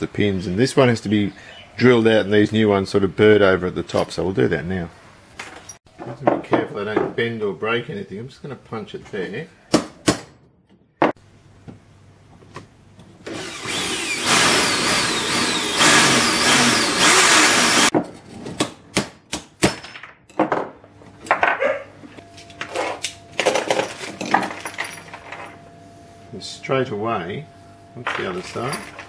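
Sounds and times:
electric drill drilling metal: 13.3 - 17.9.

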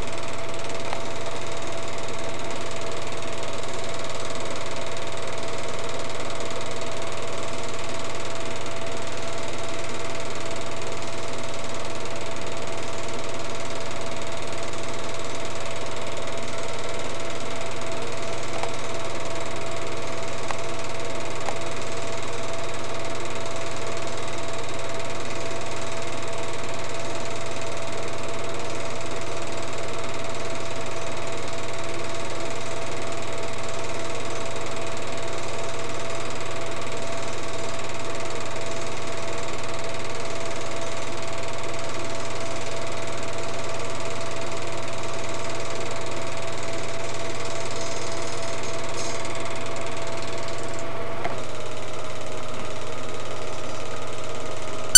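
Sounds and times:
film projector whirring: 0.0 - 54.9.

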